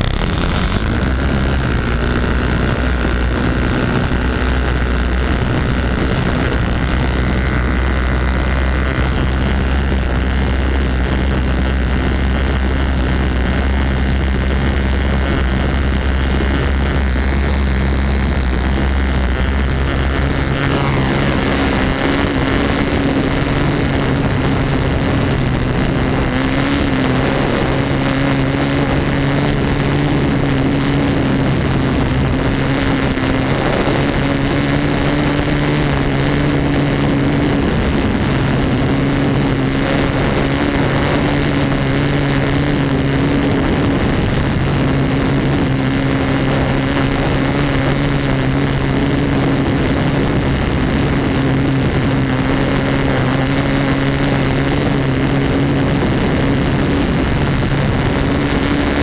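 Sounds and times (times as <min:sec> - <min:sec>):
model airplane engine running: 0:00.0 - 0:59.0.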